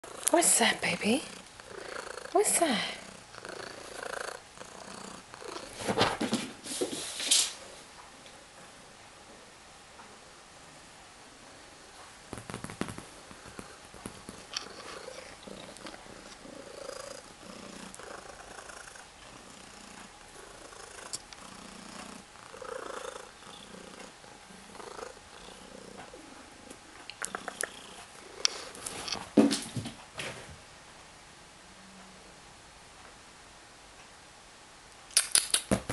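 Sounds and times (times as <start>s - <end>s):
cat purring: 0.0s - 5.9s, 12.3s - 28.9s
sharp clicks: 35.1s - 35.7s.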